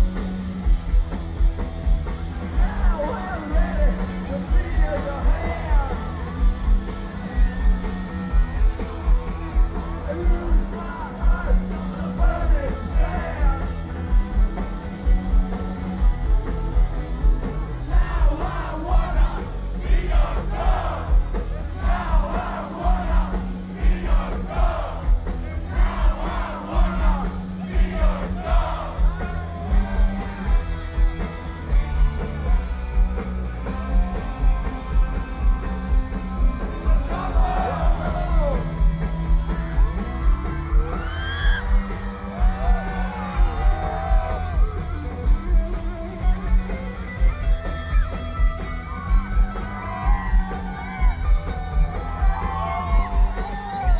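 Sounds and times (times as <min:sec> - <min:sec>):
crowd noise: 0:00.0 - 0:53.9
live rock band playing: 0:00.0 - 0:53.9
man singing: 0:10.0 - 0:13.7, 0:17.9 - 0:19.4.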